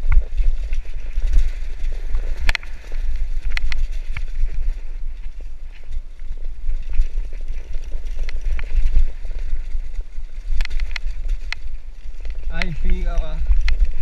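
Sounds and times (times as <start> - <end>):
bike clattering over stones: 0.0 - 14.0
wind rumble on microphone: 0.0 - 14.0.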